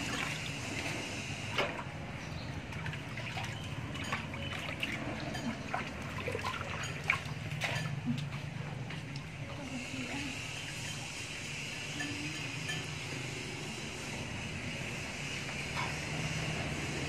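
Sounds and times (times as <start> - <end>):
small splashes: 2.6 - 8.2
water trickling off dog: 2.7 - 8.4.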